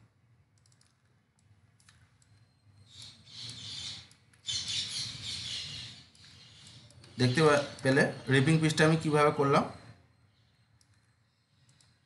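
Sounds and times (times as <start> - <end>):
mouse clicks: 0.6 - 4.4, 10.8 - 12.0.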